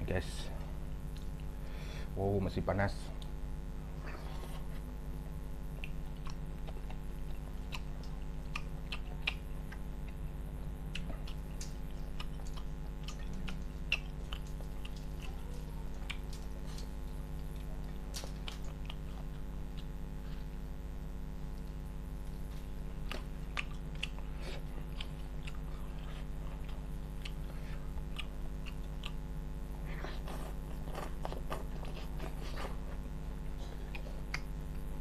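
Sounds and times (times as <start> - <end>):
steady low hum: 0.0 - 35.0
chewing and lip smacking: 5.7 - 20.1, 21.4 - 34.9.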